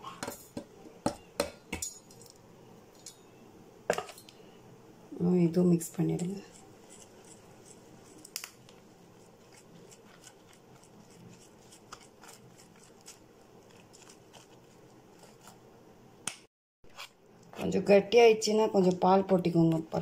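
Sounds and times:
spoon stirring in steel bowl: 6.0 - 8.4, 9.1 - 15.6.

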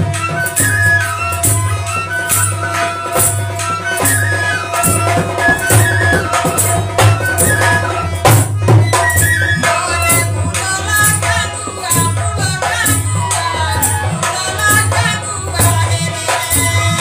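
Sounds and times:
dholak drum rhythm: 0.0 - 17.0
harmonium melody with drone: 0.0 - 17.0.

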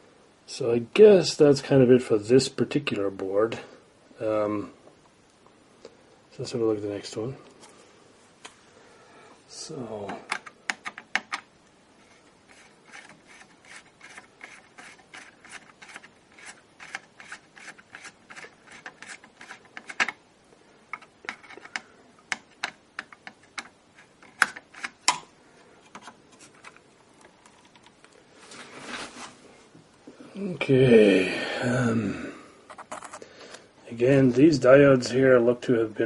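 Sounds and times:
screwdriver clicking and scraping: 12.5 - 20.2, 20.9 - 25.2.

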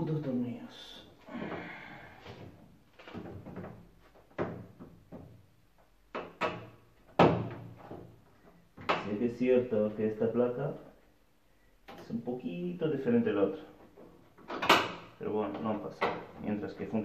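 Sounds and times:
plastic and metal knocks: 2.3 - 5.5, 6.1 - 8.2.

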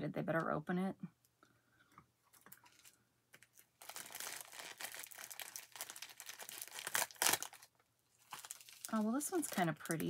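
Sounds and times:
packaging crinkling: 2.3 - 10.0.

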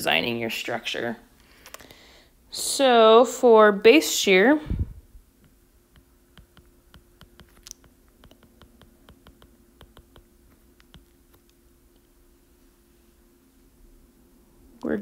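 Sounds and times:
faint steady hum: 0.0 - 15.0
stylus tapping on glass screen: 5.4 - 11.2.

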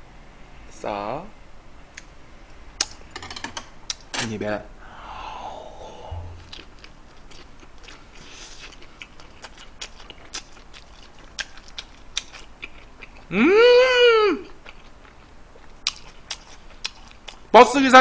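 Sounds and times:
person humming with pleasure: 4.9 - 6.6, 13.3 - 14.5
close-up chewing: 6.4 - 13.3, 14.5 - 17.5.

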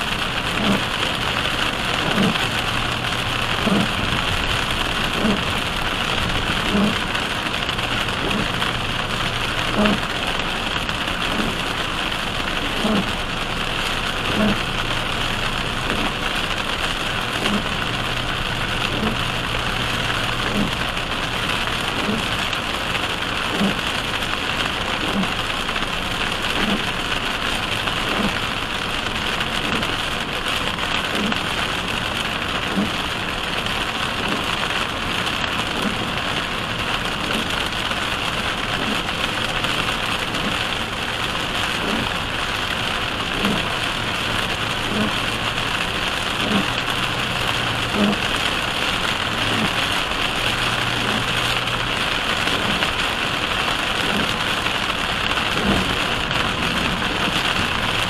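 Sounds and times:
heavy rain on car roof: 0.0 - 58.0
windshield wipers thumping: 0.6 - 8.8, 9.7 - 11.7, 18.9 - 19.2, 20.5 - 20.8, 32.7 - 33.0, 41.8 - 42.1, 44.8 - 45.2, 47.9 - 48.3, 49.5 - 49.8, 54.0 - 54.5, 55.5 - 58.0.

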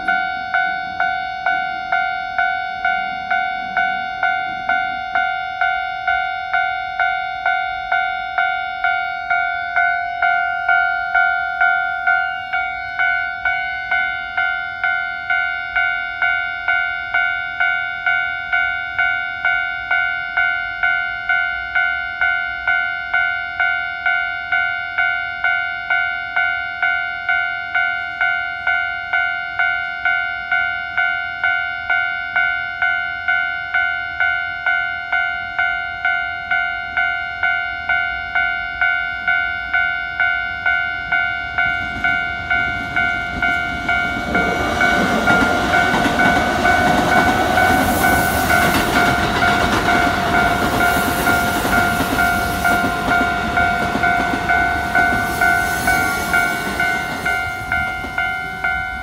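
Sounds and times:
electric train passing: 0.0 - 59.0
railway crossing bell ringing: 0.0 - 59.0
train wheels clacking on rail joints: 41.6 - 59.0.

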